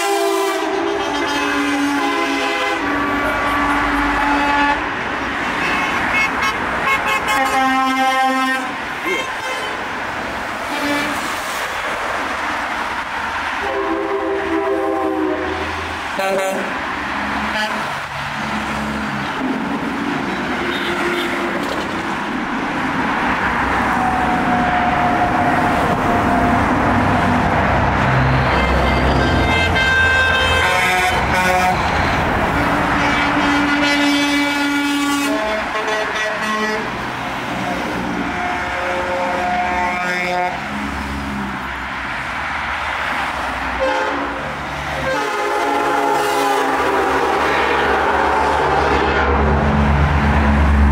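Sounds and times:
horns honking: 0:00.0 - 0:09.9, 0:10.6 - 0:11.4, 0:13.6 - 0:16.8, 0:17.4 - 0:18.0, 0:20.3 - 0:21.8, 0:28.1 - 0:40.8, 0:43.8 - 0:49.5
trucks passing on highway: 0:00.0 - 0:50.9.

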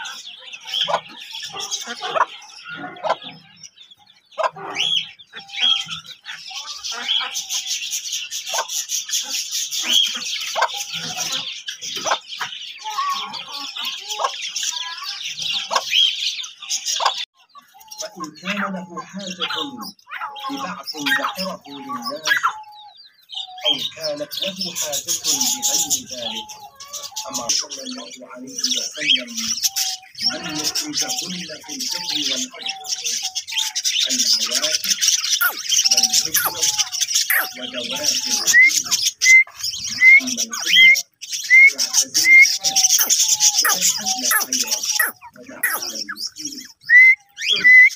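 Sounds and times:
hen clucking: 0:00.0 - 0:03.7, 0:04.3 - 0:07.7, 0:08.5 - 0:16.1, 0:17.0 - 0:23.0, 0:34.1 - 0:47.9
small birds chirping: 0:00.0 - 0:47.9.

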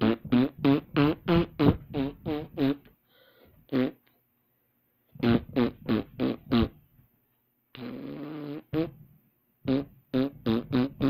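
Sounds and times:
person making comic mouth noises: 0:00.0 - 0:02.9, 0:05.2 - 0:06.8, 0:07.7 - 0:09.0, 0:09.7 - 0:11.0.

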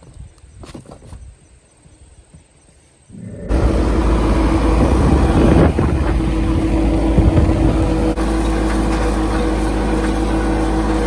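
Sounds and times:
farm vehicle engine running: 0:03.4 - 0:11.0.

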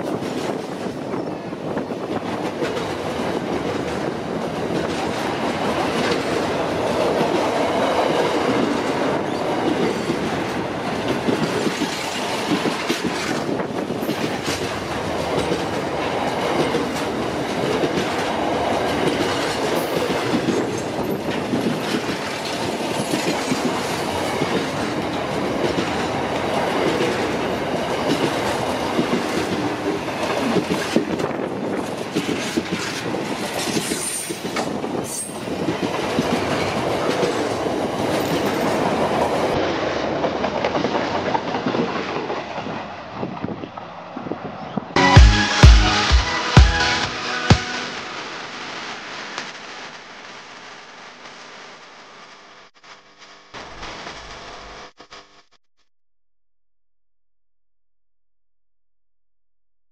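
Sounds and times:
train wheels on rails: 0:00.0 - 0:44.8.

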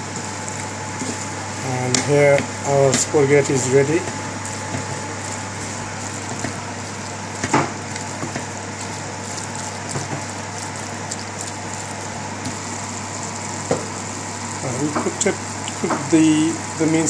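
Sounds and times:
spatula stirring meat in a pan: 0:00.0 - 0:01.5, 0:02.4 - 0:15.9
steady hiss and hum: 0:00.0 - 0:17.0.

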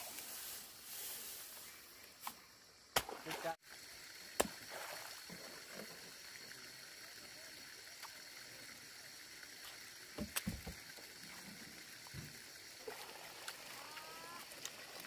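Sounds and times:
faint steady hiss: 0:00.0 - 0:15.0
thin high steady tone: 0:13.7 - 0:14.5.

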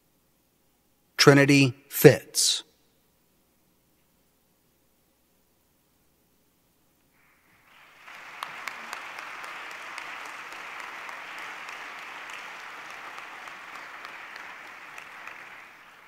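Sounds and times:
audience applauding: 0:07.5 - 0:16.0.

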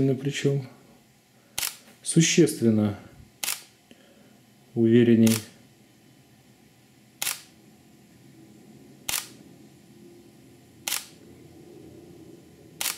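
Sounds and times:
camera shutter firing: 0:01.6 - 0:01.8, 0:03.4 - 0:03.7, 0:05.2 - 0:05.5, 0:07.2 - 0:07.5, 0:09.0 - 0:09.4, 0:10.8 - 0:11.2.

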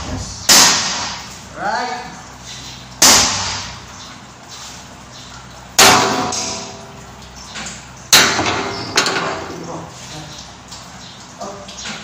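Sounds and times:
metal tank ringing: 0:05.7 - 0:09.7.

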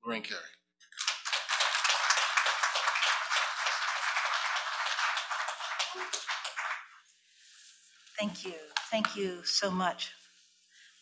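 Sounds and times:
audience applauding: 0:00.9 - 0:07.0.

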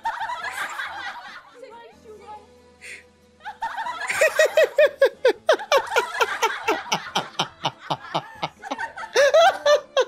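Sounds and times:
woman laughing hard: 0:03.5 - 0:10.0.

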